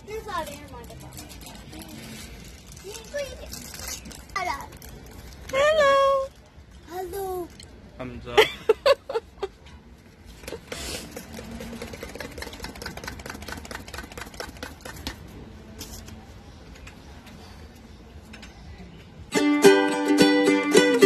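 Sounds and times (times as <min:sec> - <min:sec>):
ukulele music: 0:19.3 - 0:21.0.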